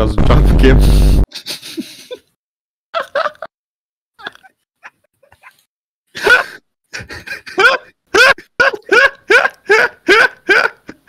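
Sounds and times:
person's voice: 0.0s - 1.0s.

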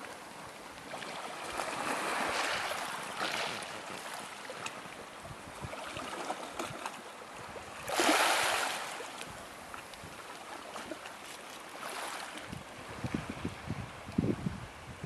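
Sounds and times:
small waves lapping: 0.0s - 13.7s.

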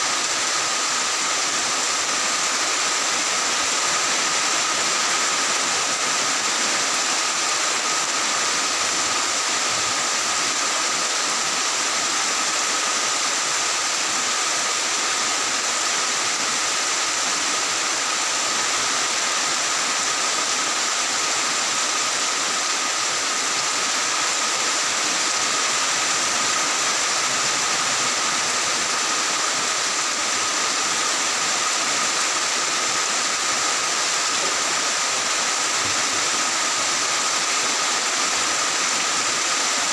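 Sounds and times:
heavy rain falling: 21.1s - 39.9s.

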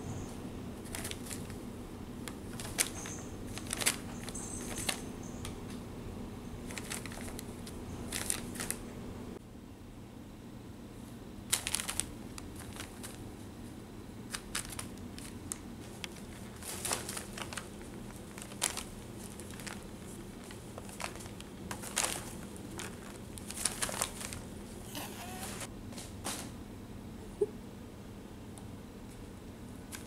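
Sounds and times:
paper and plastic crinkling: 0.8s - 1.6s, 2.2s - 5.1s, 6.6s - 8.8s, 11.5s - 13.2s, 14.3s - 25.7s.

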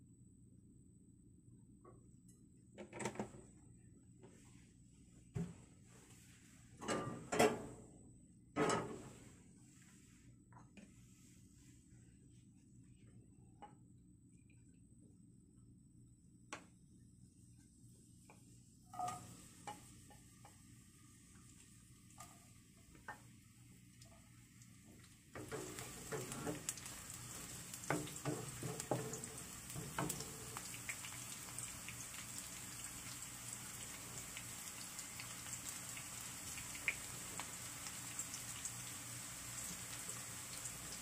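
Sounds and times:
oil sizzling in a pan: 19.0s - 41.0s.

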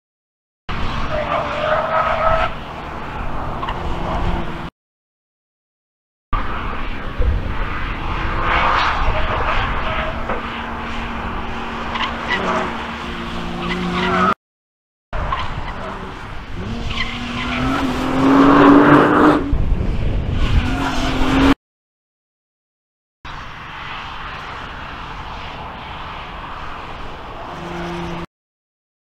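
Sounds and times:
race car engine accelerating: 15.7s - 19.5s.

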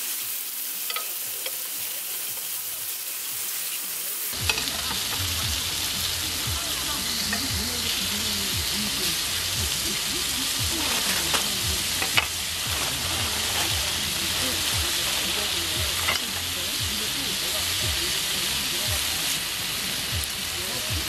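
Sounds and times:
meat sizzling on a grill: 0.0s - 21.0s
metal tongs clicking: 0.9s - 1.6s.

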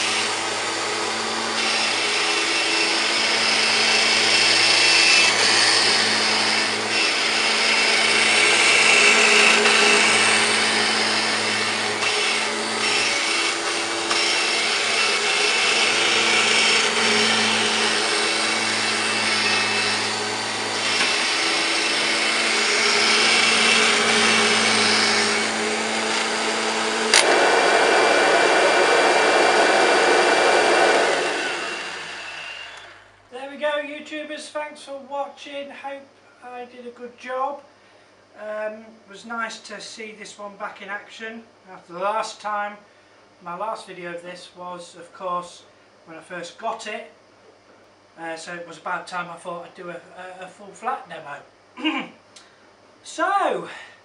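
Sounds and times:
vacuum cleaner running on carpet: 0.0s - 4.6s, 5.3s - 32.9s
sharp click: 27.1s - 27.3s.

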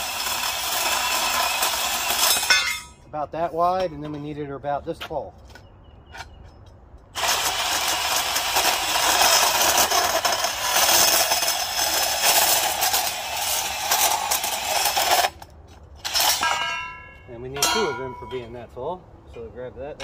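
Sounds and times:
band saw cutting metal: 0.0s - 3.0s, 7.1s - 16.9s.

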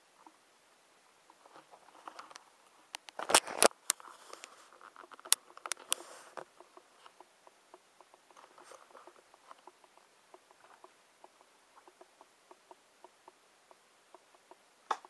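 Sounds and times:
sharp clicks: 2.2s - 15.0s
small motor ticking: 5.9s - 15.0s.

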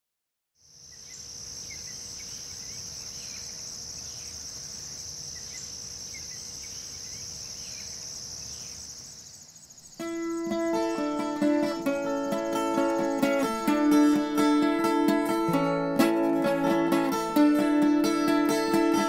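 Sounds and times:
crickets chirring: 0.6s - 19.0s
acoustic guitar playing: 10.0s - 19.0s.

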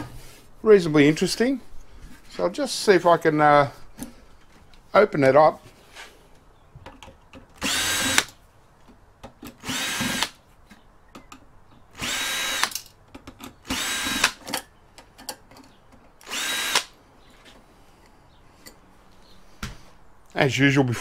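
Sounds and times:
power drill whining: 7.6s - 8.4s, 9.6s - 10.4s, 11.9s - 12.8s, 13.6s - 14.4s, 16.2s - 17.0s.

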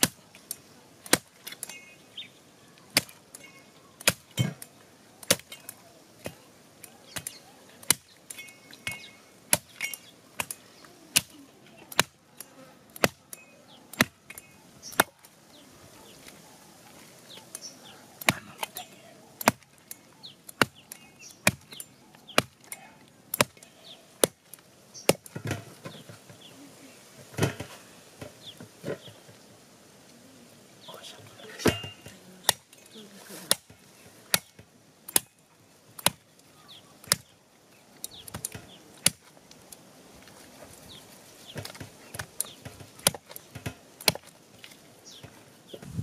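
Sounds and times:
bird chirps: 6.9s - 11.0s.

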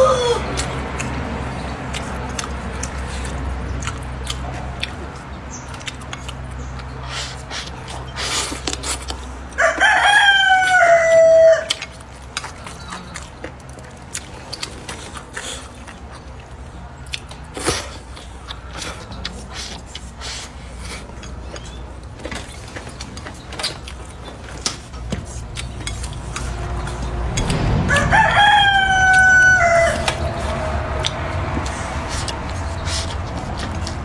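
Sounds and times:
rooster crowing: 0.0s - 0.5s, 9.5s - 11.8s, 27.4s - 31.6s.

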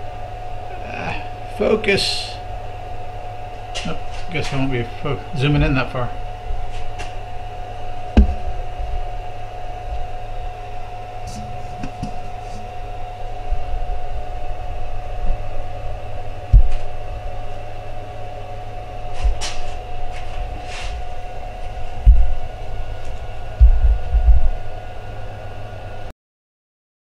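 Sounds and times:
milling machine whining: 0.0s - 26.1s
low thumps: 8.1s - 9.2s, 16.5s - 17.3s, 21.0s - 22.5s, 23.6s - 24.6s.

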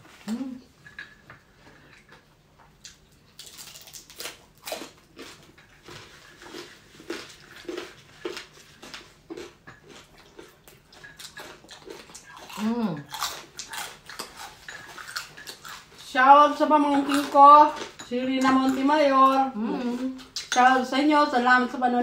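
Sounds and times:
chewing crispy skin: 2.0s - 16.2s.

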